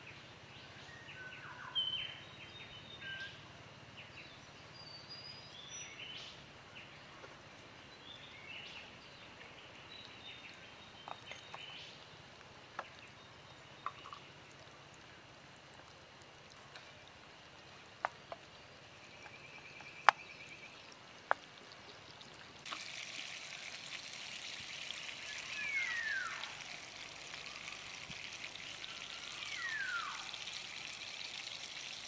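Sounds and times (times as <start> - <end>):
birds chirping: 7.9 - 14.5, 18.3 - 23.8, 24.4 - 31.4.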